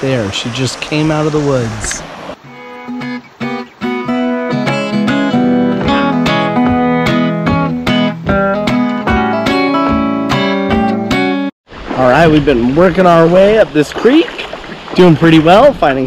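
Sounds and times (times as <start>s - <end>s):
acoustic guitar plucked: 2.4s - 11.5s.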